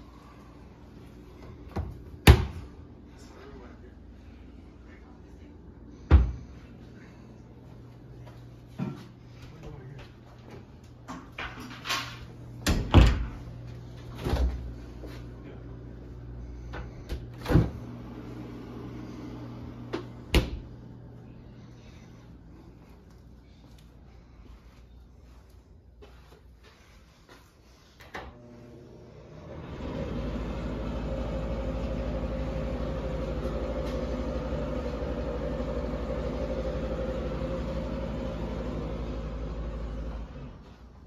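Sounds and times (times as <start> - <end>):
faint low hum: 0.0 - 29.5
doors knocking and thumping: 11.2 - 13.4.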